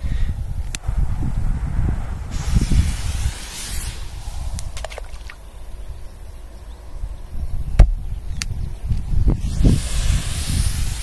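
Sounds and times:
hiss: 0:00.0 - 0:06.3, 0:09.0 - 0:11.0
wind rumbling on microphone: 0:00.0 - 0:11.0
sharp click: 0:07.8 - 0:09.1.

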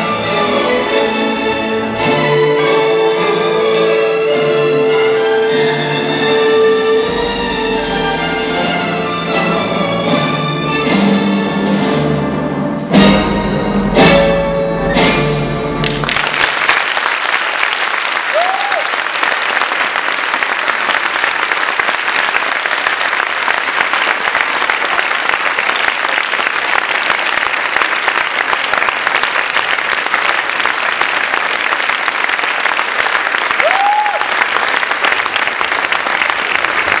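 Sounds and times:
audience applauding: 0:15.8 - 0:37.0.

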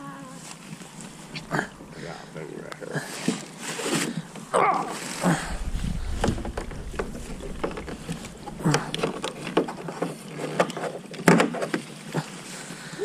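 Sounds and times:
hollow knocks and scrapes of kayak: 0:03.0 - 0:12.0.

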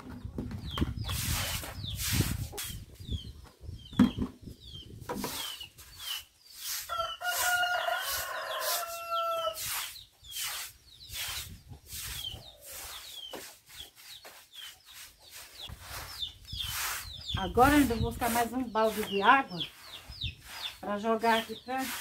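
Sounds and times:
birds chirping: 0:00.0 - 0:22.0
broom sweeping floor: 0:01.1 - 0:03.0, 0:05.2 - 0:22.0
rooster crowing: 0:06.9 - 0:09.6.

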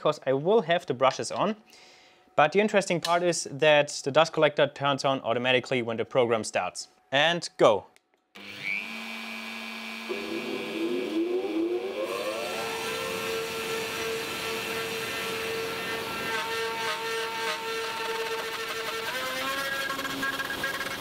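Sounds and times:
dust collector running: 0:08.4 - 0:16.5
router bit scraping wood: 0:08.4 - 0:21.0
router spindle whine: 0:08.4 - 0:21.0.

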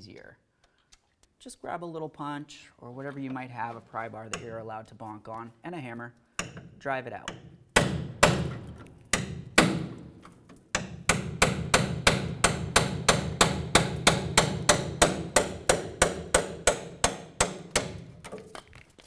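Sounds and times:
hammer striking metal punch: 0:06.4 - 0:18.1.

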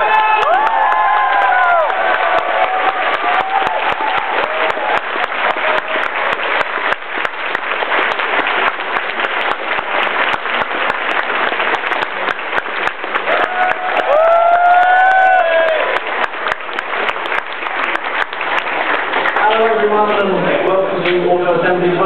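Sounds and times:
audience applauding: 0:00.0 - 0:20.7
sharp close claps: 0:01.8 - 0:14.2
crowd calling out: 0:13.3 - 0:16.0.

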